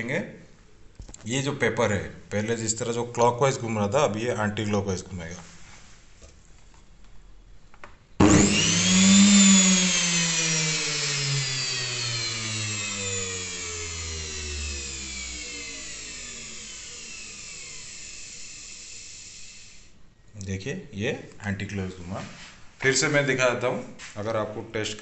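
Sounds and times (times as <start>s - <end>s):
electric motor whining: 8.2s - 19.9s.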